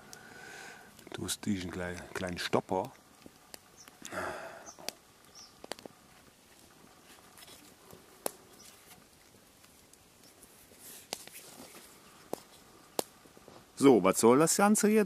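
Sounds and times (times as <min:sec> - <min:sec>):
rustling of cord and fingers: 0:05.6 - 0:13.8.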